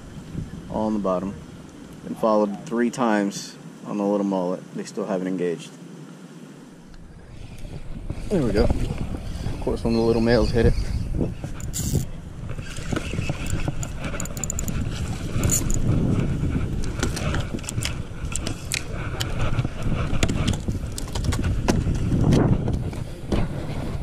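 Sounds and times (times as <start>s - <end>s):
wind buffeting microphone: 0.0s - 2.2s, 6.8s - 24.0s
fishing reel clicking: 11.6s - 14.8s, 15.4s - 15.8s.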